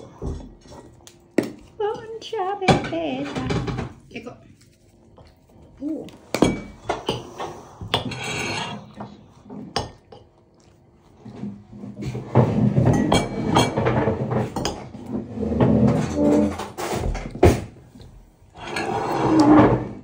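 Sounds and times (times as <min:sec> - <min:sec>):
forks scraping ceramic plates: 0:06.3 - 0:10.0, 0:12.0 - 0:17.0, 0:18.6 - 0:20.0.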